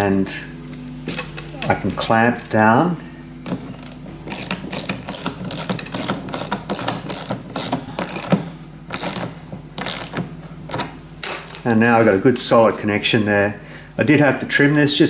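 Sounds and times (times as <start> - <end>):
ratchet clicking: 3.8 - 10.2.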